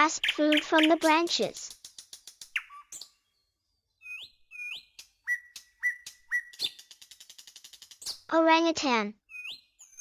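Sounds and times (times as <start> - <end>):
whistle-like chirps: 4.0 - 8.2.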